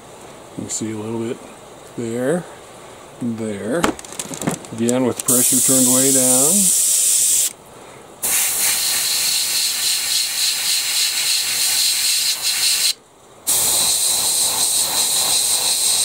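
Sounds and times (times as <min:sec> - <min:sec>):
airbrush spraying hiss: 0:05.3 - 0:07.5, 0:08.2 - 0:16.0.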